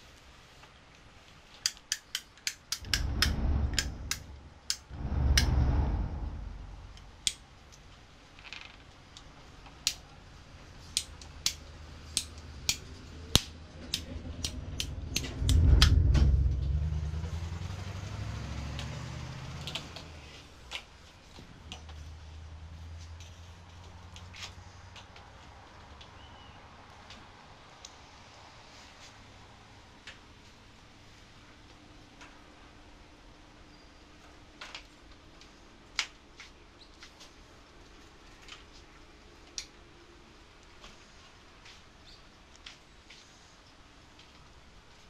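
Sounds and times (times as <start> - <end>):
ratchet pipe cutter clicking: 1.6 - 4.8
low rumbles: 2.7 - 8.3, 10.5 - 24.3.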